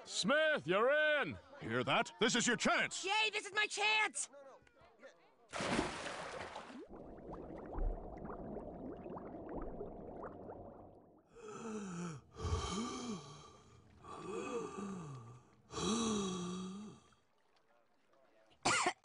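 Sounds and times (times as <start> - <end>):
muffled underwater bubbling: 6.8 - 11.2
wheezing breaths: 11.4 - 17.0.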